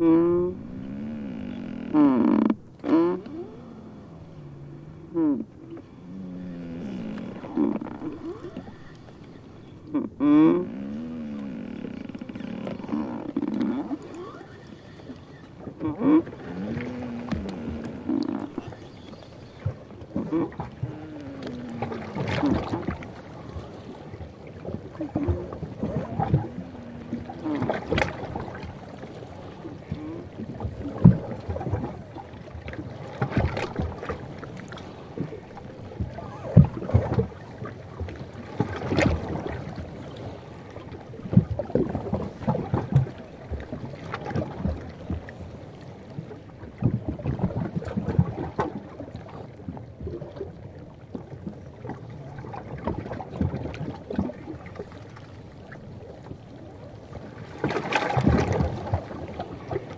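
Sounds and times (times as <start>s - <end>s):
ice squealing creaks: 1.0s - 3.5s.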